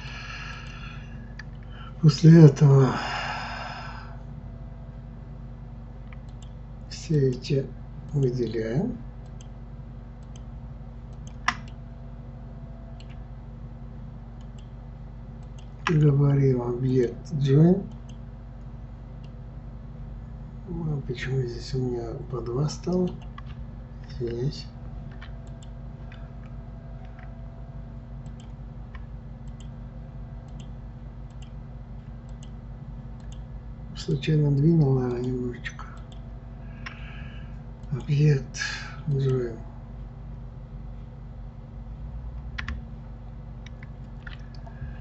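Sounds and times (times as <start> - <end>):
steady low hum: 0.0 - 45.0
computer mouse clicking: 6.1 - 6.6, 9.2 - 9.6, 10.2 - 10.5, 11.1 - 11.8, 13.0 - 13.2, 14.4 - 14.7, 15.4 - 16.0, 25.1 - 27.4, 28.2 - 29.8, 30.4 - 32.6, 33.2 - 33.5, 42.6 - 42.8.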